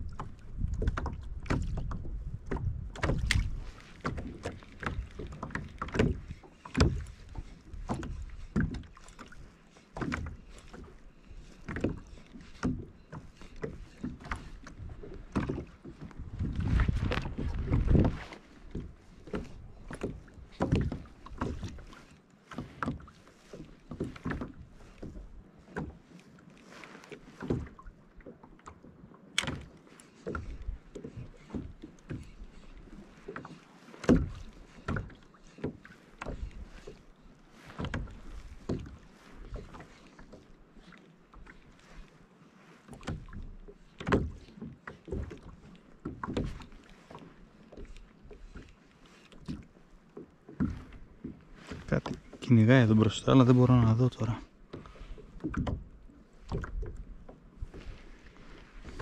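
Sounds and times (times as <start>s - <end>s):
gear knocking on plastic hull: 0.0s - 11.0s, 11.6s - 26.0s
water slapping against kayak hull: 0.0s - 59.0s.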